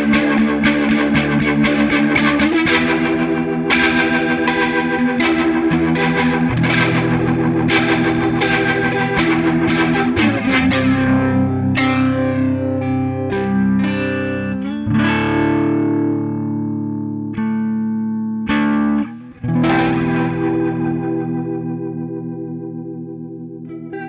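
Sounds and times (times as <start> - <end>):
electric guitar chords with rotary effect: 0.0 - 24.0.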